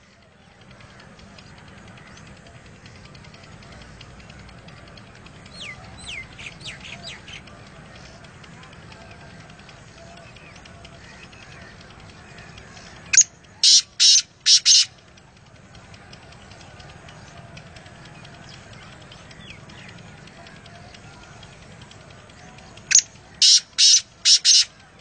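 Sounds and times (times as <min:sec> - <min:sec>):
francolin calling harsh grating notes: 0:13.6 - 0:14.9, 0:22.9 - 0:24.7.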